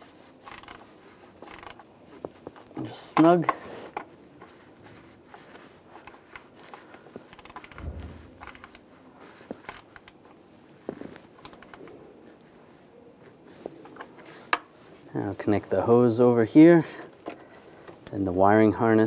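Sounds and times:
dull thump: 0:07.8 - 0:08.7.

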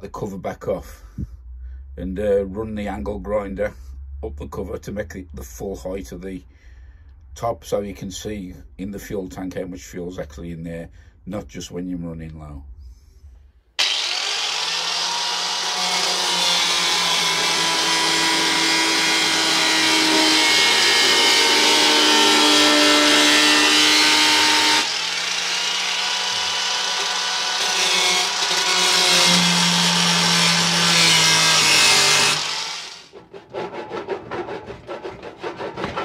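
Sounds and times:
angle grinder cutting sheet metal: 0:13.8 - 0:33.1.

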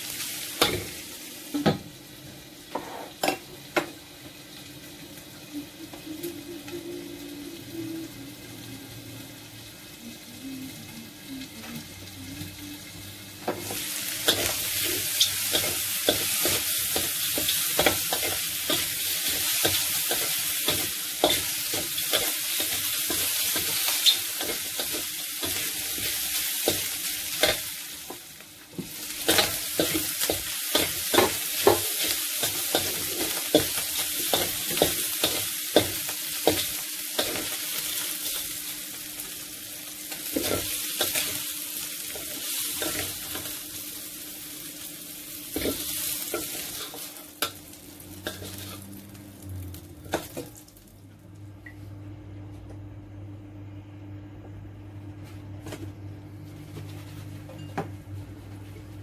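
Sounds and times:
food sizzling in a wok: 0:00.0 - 0:51.2
metal spatula scraping a pan: 0:48.3 - 0:48.9.

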